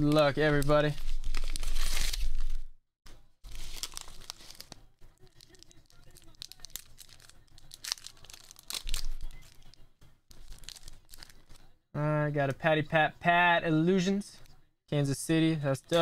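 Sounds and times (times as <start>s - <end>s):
padded mailer crinkling: 3.5s - 9.7s.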